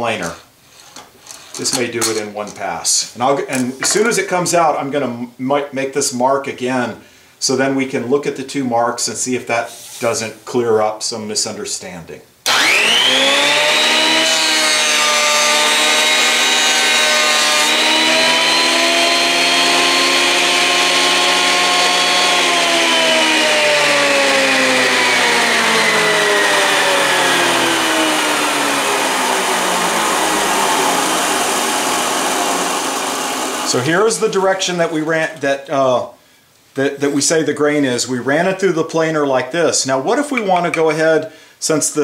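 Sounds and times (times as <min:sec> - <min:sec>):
thickness planer whining: 0:12.5 - 0:34.9.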